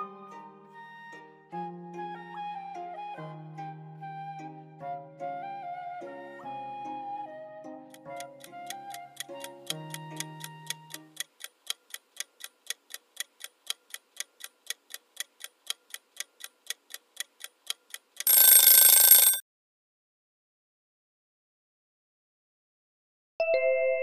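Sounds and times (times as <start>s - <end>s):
soft flute music: 0.0s - 11.2s
clock ticking: 7.9s - 19.4s
loud alarm ringing: 18.3s - 19.4s.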